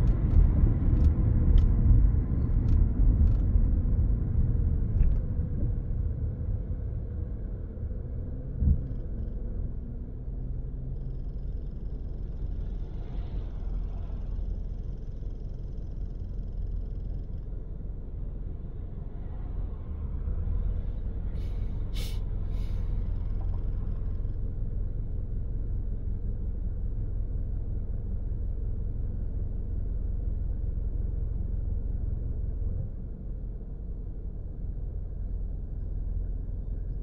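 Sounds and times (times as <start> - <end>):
brief hiss: 21.4 - 22.9.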